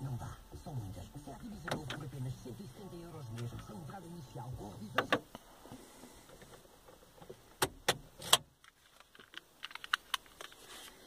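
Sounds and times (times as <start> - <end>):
car button and ignition clicks: 1.5 - 2.3, 4.8 - 5.4.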